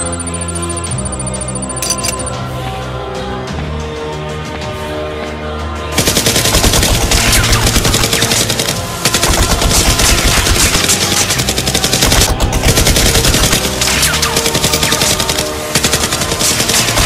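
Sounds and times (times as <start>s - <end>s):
rapid automatic gunfire: 6.0s - 17.0s.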